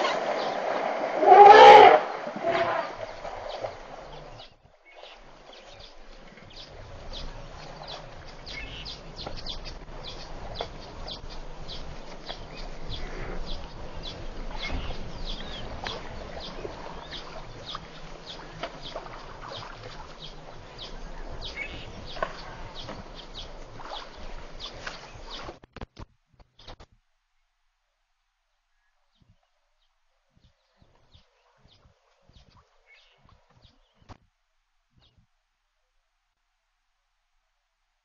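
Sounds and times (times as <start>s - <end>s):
birds chirping: 0.0s - 1.6s, 2.4s - 25.6s
low background rumble: 0.0s - 25.5s.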